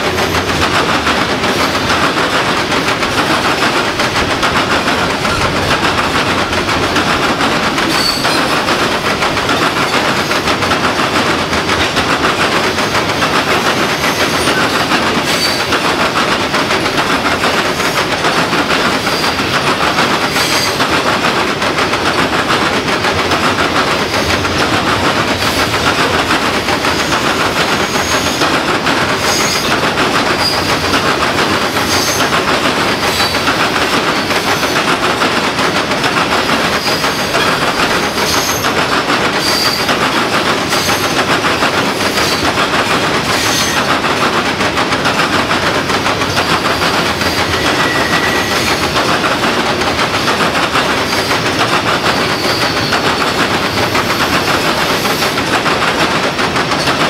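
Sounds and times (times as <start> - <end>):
train wheels clattering on rails: 0.0 - 57.0
wheel squeals: 7.9 - 8.6, 47.2 - 48.8, 52.1 - 53.3.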